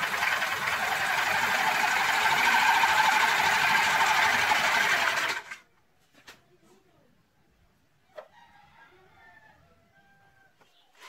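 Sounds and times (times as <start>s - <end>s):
pump rapid mechanical clatter: 0.0s - 5.6s.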